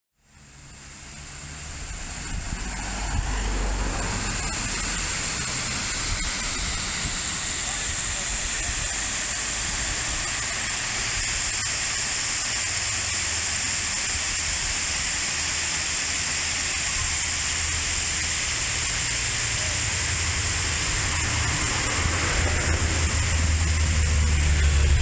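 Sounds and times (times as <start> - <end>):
waterfall rushing: 0.4 - 25.0
low rumble: 1.4 - 10.2.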